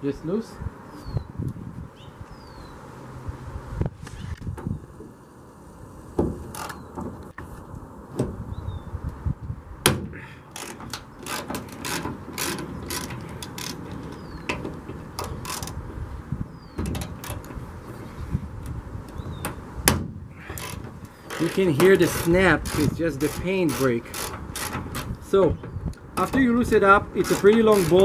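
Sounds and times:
ratchet wrench clicking: 0:20.6 - 0:25.1, 0:27.2 - 0:28.0.

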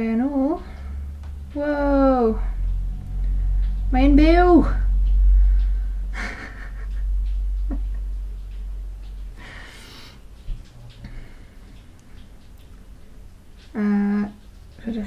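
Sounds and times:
low rumble: 0:00.0 - 0:11.4
woman breathing puffs: 0:09.4 - 0:10.2.

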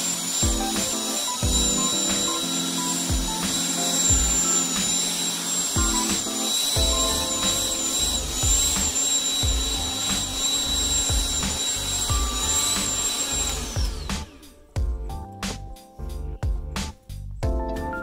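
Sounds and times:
electric tiller motor whining: 0:00.0 - 0:14.8
background music with beat: 0:00.0 - 0:18.0.

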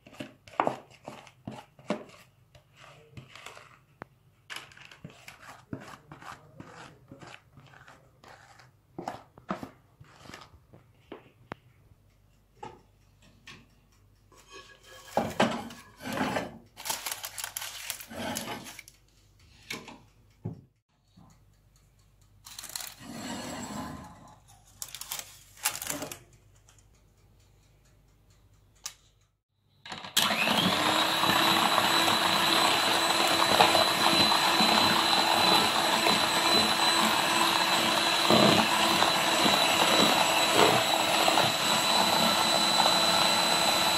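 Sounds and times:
spatula and bowl scraping and knocking: 0:00.0 - 0:03.9, 0:04.6 - 0:11.3, 0:14.3 - 0:16.7, 0:17.9 - 0:18.9, 0:30.7 - 0:43.9
electric hand mixer whining: 0:29.9 - 0:43.9.

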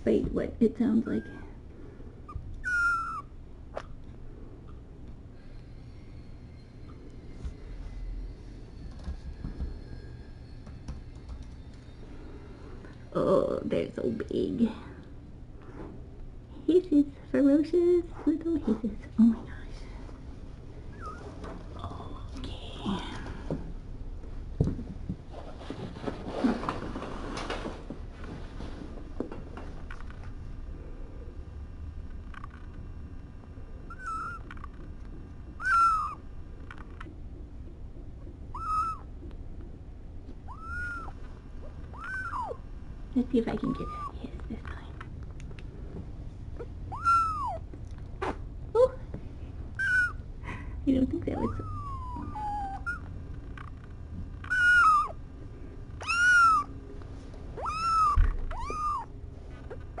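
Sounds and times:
kittens mewing: 0:33.9 - 0:34.7, 0:35.6 - 0:36.2, 0:38.5 - 0:39.1, 0:40.5 - 0:42.6, 0:43.6 - 0:44.2, 0:46.6 - 0:47.7, 0:51.3 - 0:53.7, 0:54.4 - 0:55.2, 0:56.0 - 0:56.8, 0:57.6 - 1:00.0.

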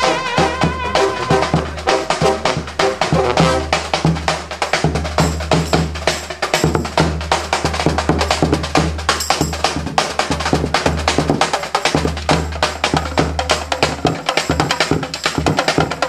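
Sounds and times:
tuba bass line: 0:00.0 - 0:04.0
brass horns: 0:00.0 - 0:04.2
drums and percussion: 0:00.0 - 0:16.0.

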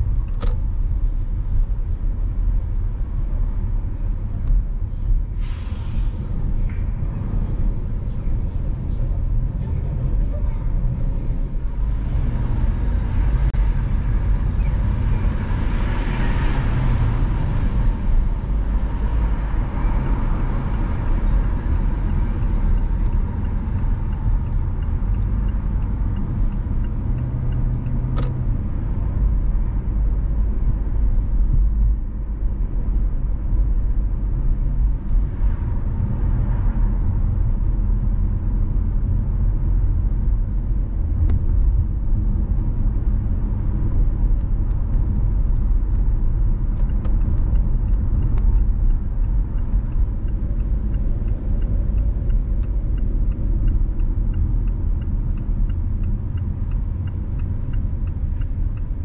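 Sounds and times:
road and engine rumble: 0:00.0 - 0:59.0.

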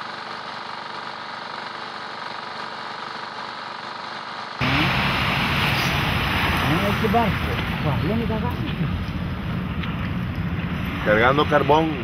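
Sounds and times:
engine humming: 0:04.6 - 0:12.0.

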